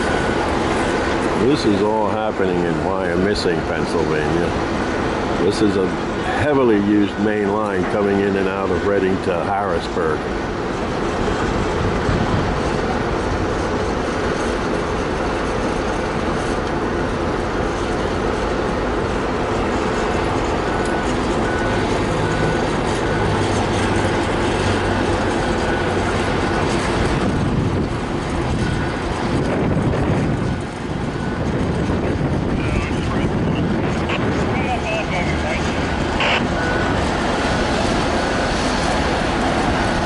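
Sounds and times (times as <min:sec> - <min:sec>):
backup alarm beeping: 0:00.0 - 0:00.6, 0:32.5 - 0:39.8
diesel heavy equipment running: 0:00.0 - 0:40.0.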